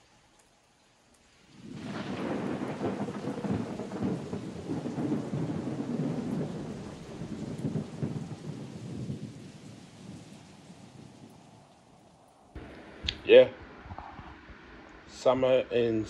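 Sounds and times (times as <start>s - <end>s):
rain falling: 0.0s - 16.0s
rolling thunder: 1.6s - 11.6s, 12.6s - 16.0s.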